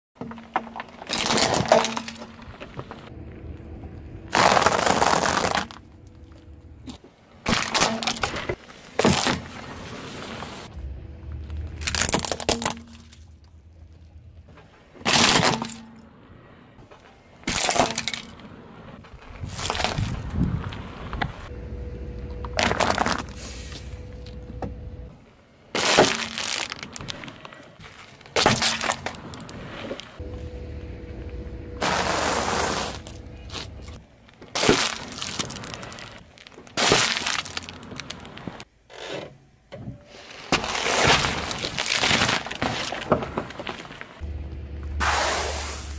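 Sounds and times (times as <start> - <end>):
low rumble: 3.0 - 7.0, 10.7 - 14.6, 30.2 - 34.0, 44.2 - 45.9
tyre crushing objects: 3.8 - 9.7, 11.4 - 15.8, 22.6 - 23.4, 31.8 - 36.1
snack bag bursting: 4.3 - 5.8, 11.8 - 13.2.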